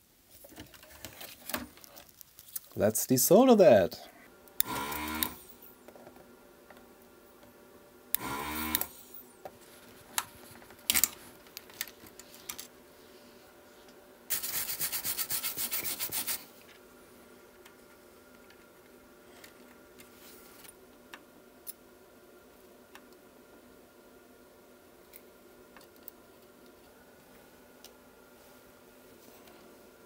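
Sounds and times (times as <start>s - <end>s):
desoldering gun vacuum pump: 4.5s - 6.1s, 8.1s - 9.3s.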